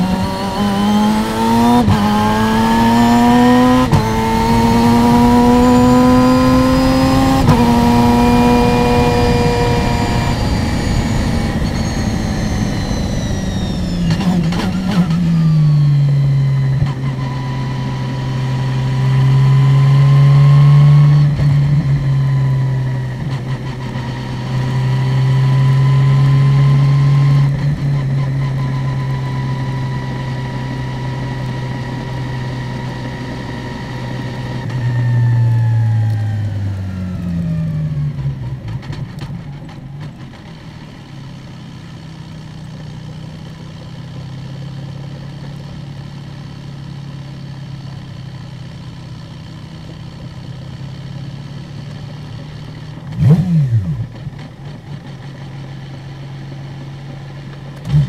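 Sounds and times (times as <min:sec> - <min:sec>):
high whine: 0:00.0 - 0:20.0
race car engine: 0:00.0 - 0:58.0.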